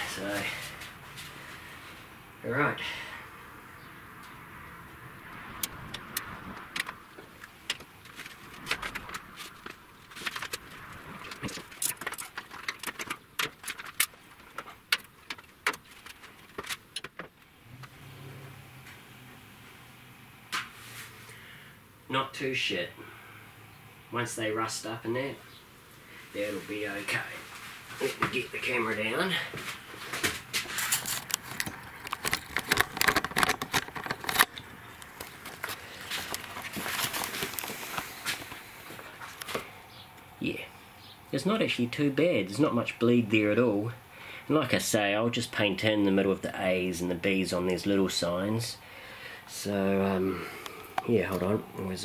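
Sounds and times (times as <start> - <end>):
paper rustling: 6.9 - 17.4, 29.7 - 39.6.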